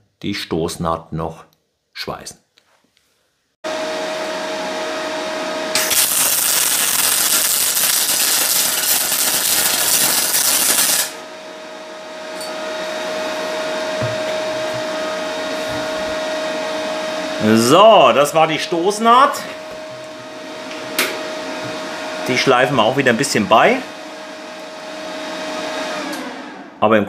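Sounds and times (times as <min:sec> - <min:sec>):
welder humming: 0:03.7 - 0:26.8
welding arc hissing: 0:05.7 - 0:11.2.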